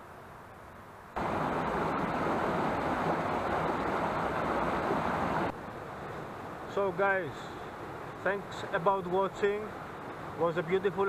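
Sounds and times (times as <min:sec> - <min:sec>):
mountain stream rushing: 0:00.0 - 0:11.0.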